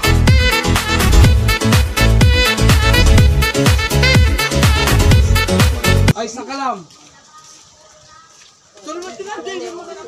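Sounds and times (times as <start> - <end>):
electronic dance music: 0.0 - 6.1.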